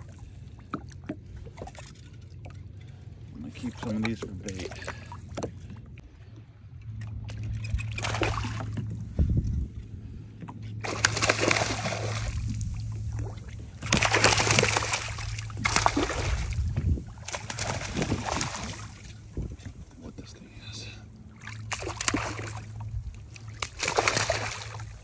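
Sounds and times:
steady low hum: 0:00.0 - 0:25.0
fish splashing in water: 0:07.8 - 0:08.9, 0:10.8 - 0:19.3, 0:21.3 - 0:25.0.

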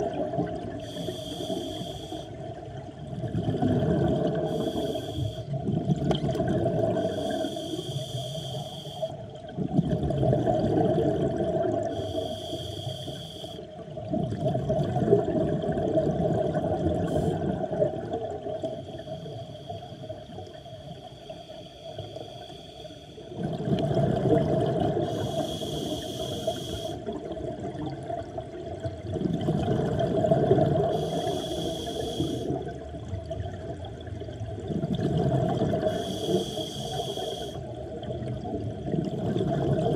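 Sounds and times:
exhaled bubbles underwater: 0:00.0 - 0:21.4, 0:23.2 - 0:39.9
scuba regulator hiss: 0:00.8 - 0:02.3, 0:04.5 - 0:05.5, 0:07.1 - 0:09.1, 0:11.9 - 0:13.6, 0:25.0 - 0:27.0, 0:30.9 - 0:32.6, 0:35.9 - 0:37.6.

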